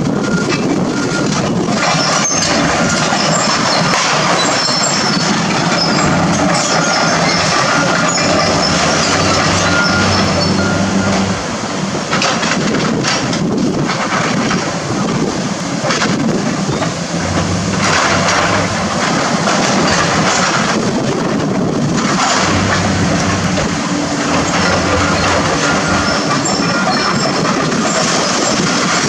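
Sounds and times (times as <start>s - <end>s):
diesel engines running: 0.0s - 29.0s
clatter of rubble and metal debris: 0.2s - 11.3s, 12.0s - 29.0s
debris crashing into steel dumpster: 17.1s - 29.0s.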